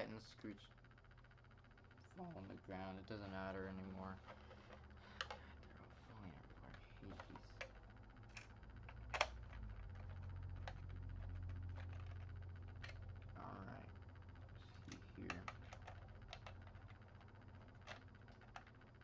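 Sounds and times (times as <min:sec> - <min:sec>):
plastic parts clicking and tapping: 0:04.2 - 0:05.5, 0:06.6 - 0:13.4, 0:14.8 - 0:19.0.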